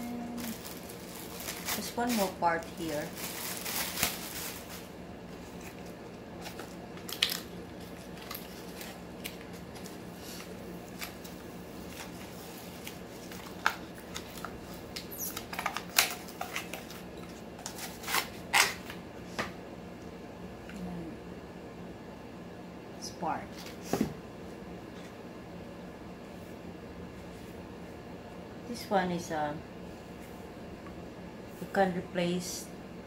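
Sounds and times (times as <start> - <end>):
plastic bag crinkling: 0.3 - 18.8.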